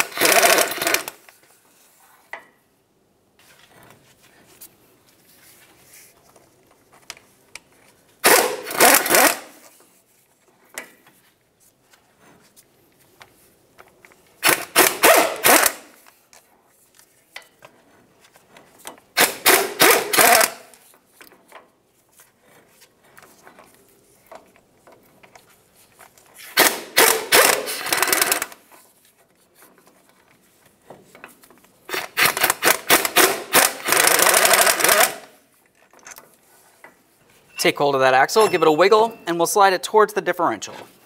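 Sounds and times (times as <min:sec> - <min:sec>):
impact wrench hammering: 0:00.0 - 0:01.2, 0:14.4 - 0:15.9, 0:19.2 - 0:20.7, 0:26.6 - 0:28.6, 0:32.2 - 0:35.3.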